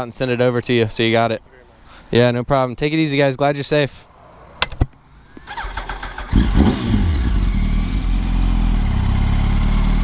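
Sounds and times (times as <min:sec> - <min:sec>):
motorcycle engine pulling away: 0:05.4 - 0:10.0.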